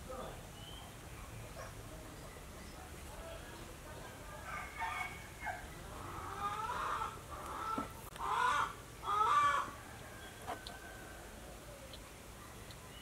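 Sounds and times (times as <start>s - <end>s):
chickens clucking: 5.8s - 9.8s.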